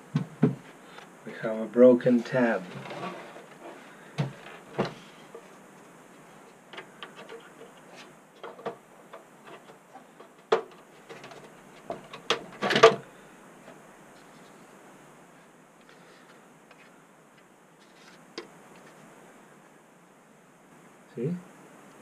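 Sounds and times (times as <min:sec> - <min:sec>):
rattling scrape: 0:02.6 - 0:03.8.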